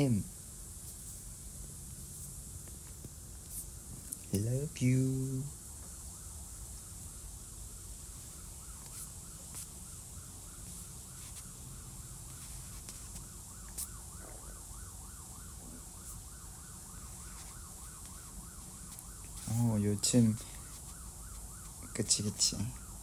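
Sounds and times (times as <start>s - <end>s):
siren yelping: 7.5s - 23.0s.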